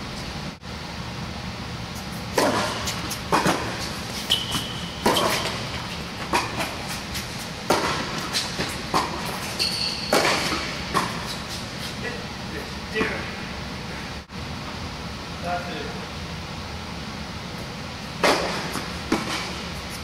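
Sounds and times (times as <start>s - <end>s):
steady low hum: 0.0s - 20.0s
tennis ball bouncing: 2.3s - 11.5s, 18.2s - 19.8s
racket striking tennis ball: 2.3s - 12.0s, 18.2s - 20.0s
high squeaks: 4.1s - 5.6s, 9.4s - 10.2s.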